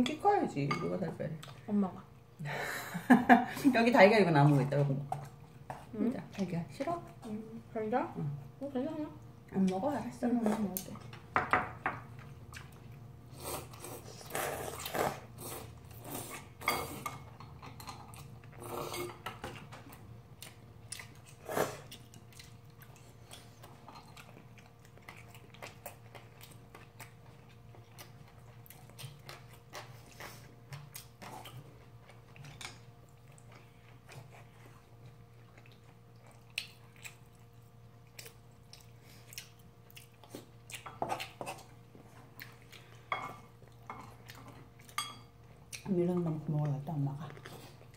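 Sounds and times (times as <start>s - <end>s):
people chewing: 12.0s - 47.9s.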